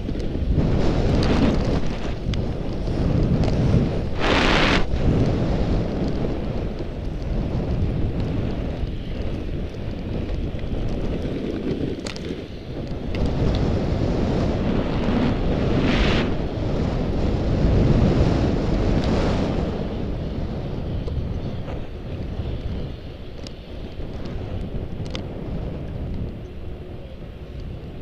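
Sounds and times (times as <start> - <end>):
skis scraping: 0.0 - 18.4
wind on microphone: 0.0 - 28.0
skis hissing over snow: 0.4 - 5.8, 13.7 - 17.7.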